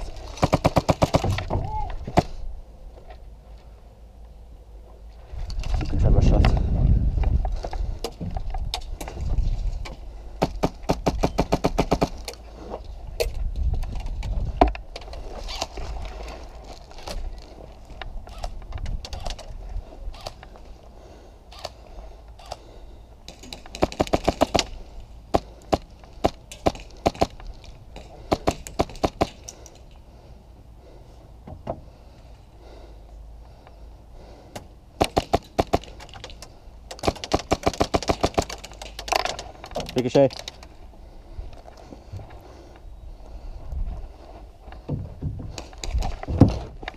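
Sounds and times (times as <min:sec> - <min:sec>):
pellets striking wooden walls: 0:00.3 - 0:02.4.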